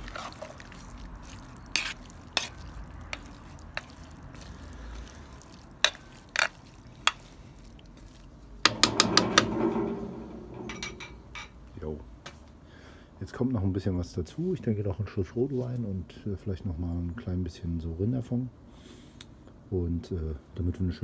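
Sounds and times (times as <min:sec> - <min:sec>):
simmering pot sizzling: 0:00.0 - 0:11.7
spoon knocking and scraping pot: 0:08.6 - 0:11.6.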